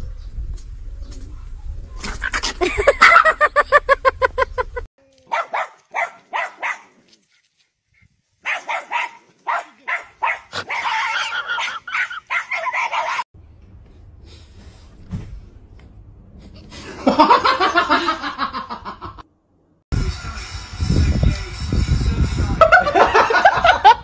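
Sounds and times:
dog yapping: 0:05.3 - 0:06.9, 0:08.4 - 0:13.2
small dog barking: 0:05.3 - 0:07.0, 0:08.4 - 0:13.2.

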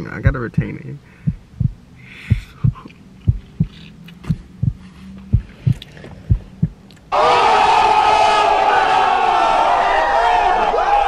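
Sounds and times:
low hum: 0:00.5 - 0:07.1
heartbeat sound effect: 0:00.6 - 0:06.8
group of people shouting: 0:07.1 - 0:11.0.

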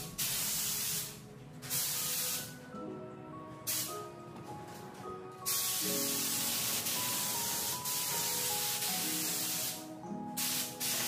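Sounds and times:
paint spray gun hissing: 0:00.0 - 0:02.5, 0:03.7 - 0:03.9, 0:05.5 - 0:11.0
background music: 0:00.0 - 0:11.0.

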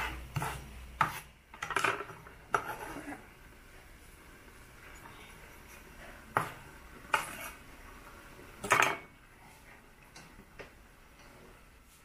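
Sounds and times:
low steady hiss: 0:00.0 - 0:12.0
utensils clattering against metal wok: 0:01.5 - 0:03.0, 0:08.6 - 0:09.1.

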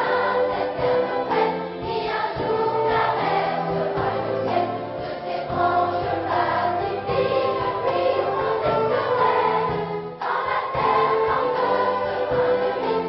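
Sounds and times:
children's choir singing: 0:00.0 - 0:13.0
orchestra accompanying: 0:00.0 - 0:13.0.

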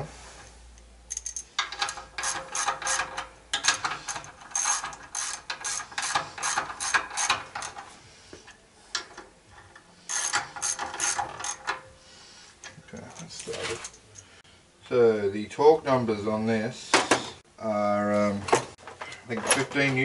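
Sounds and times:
hand ratchet clicking: 0:01.1 - 0:07.8, 0:10.1 - 0:11.8.

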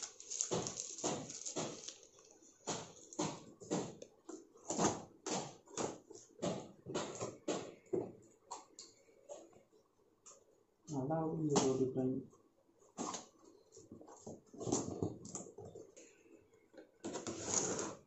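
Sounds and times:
cardboard scraping and rustling: 0:17.1 - 0:18.0.

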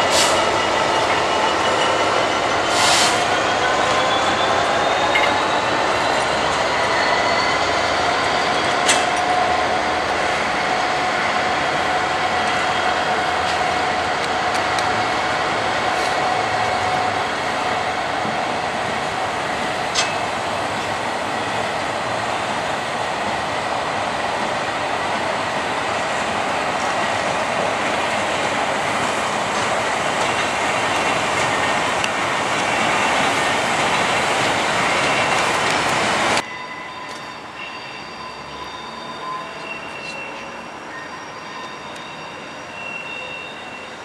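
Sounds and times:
train wheels clattering on rail: 0:07.7 - 0:09.5, 0:19.5 - 0:21.0, 0:26.2 - 0:36.4.

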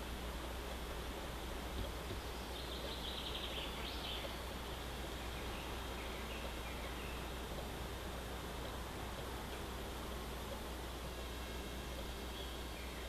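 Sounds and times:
faint high bird calls: 0:02.2 - 0:07.4, 0:12.2 - 0:13.0.

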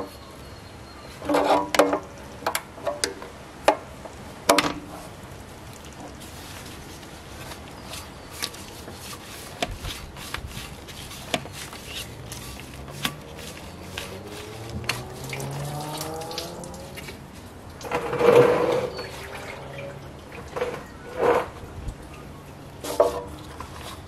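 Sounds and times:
rubber hose squeaking: 0:05.8 - 0:21.6.

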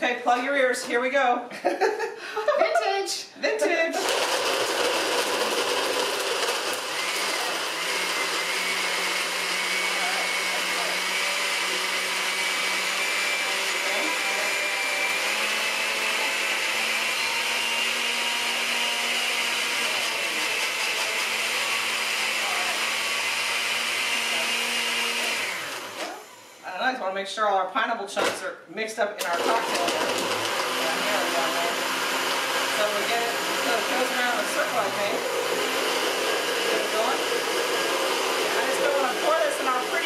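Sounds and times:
blender crushing ice: 0:03.9 - 0:26.6, 0:29.2 - 0:40.0.

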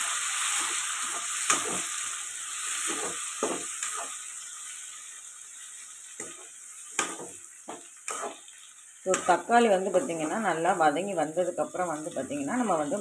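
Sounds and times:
onions sizzling in hot oil: 0:00.0 - 0:13.0
metal ladle scraping a pan: 0:06.2 - 0:10.6.

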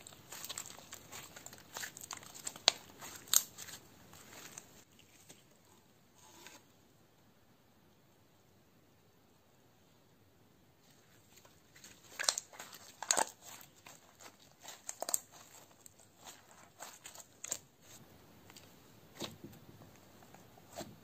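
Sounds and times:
slime squeezed crackling: 0:00.0 - 0:04.9, 0:11.2 - 0:18.0.

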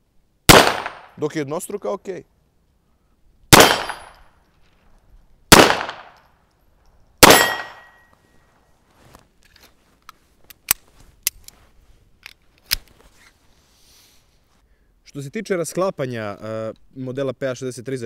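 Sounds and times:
pistol shots: 0:00.5 - 0:01.2, 0:03.5 - 0:04.2, 0:05.5 - 0:06.2, 0:07.2 - 0:08.0
short metallic ring: 0:07.3 - 0:08.3.

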